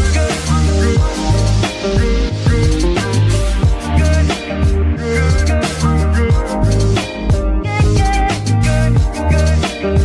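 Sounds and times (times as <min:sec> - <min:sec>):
bass line: 0:00.0 - 0:10.0
drum beat: 0:00.0 - 0:10.0.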